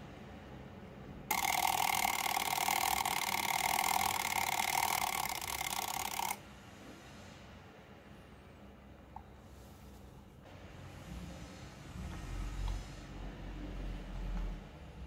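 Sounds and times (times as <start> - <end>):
alarm clock ringing: 1.3 - 6.4.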